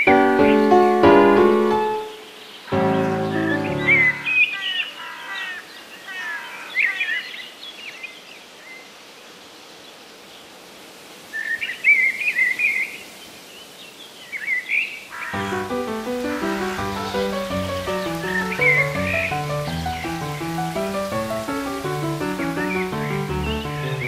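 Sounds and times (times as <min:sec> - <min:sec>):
faint outdoor hiss: 0:00.0 - 0:24.0
birds chirping and trilling: 0:01.6 - 0:08.2, 0:14.2 - 0:24.0.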